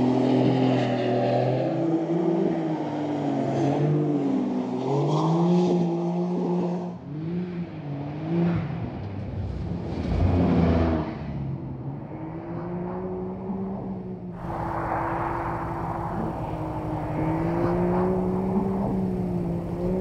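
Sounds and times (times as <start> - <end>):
car engine revving: 14.4 - 20.0
rushing hiss: 14.4 - 20.0.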